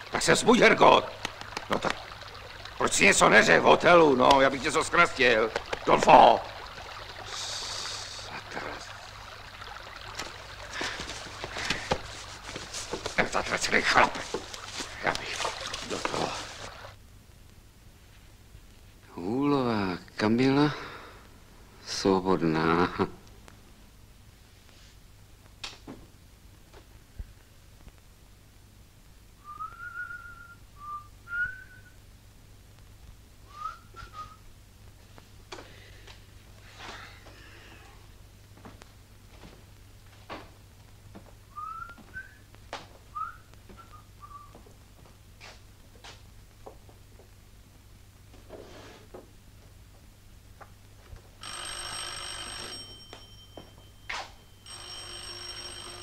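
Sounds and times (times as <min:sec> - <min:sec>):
man whistling a tune: 0:29.4 - 0:32.0, 0:33.5 - 0:34.4, 0:41.5 - 0:42.5, 0:43.2 - 0:44.5
telephone bell ringing: 0:51.4 - 0:56.0.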